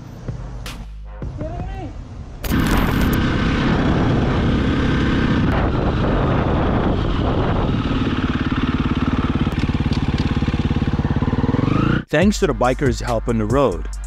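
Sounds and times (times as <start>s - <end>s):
dirt bike engine: 2.4s - 12.2s.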